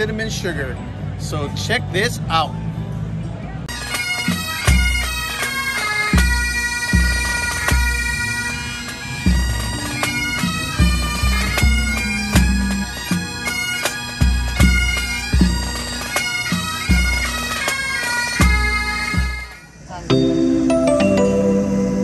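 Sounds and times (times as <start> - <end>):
bagpipes playing: 3.7 - 22.0
bass drum beating: 9.2 - 13.6.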